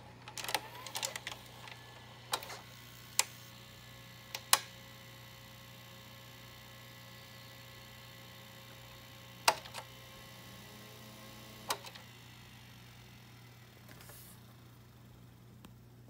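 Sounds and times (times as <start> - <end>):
motor hum: 0.0 - 16.0
tape mechanism clicks: 0.2 - 3.5, 4.2 - 4.8, 9.4 - 10.0, 11.2 - 12.2.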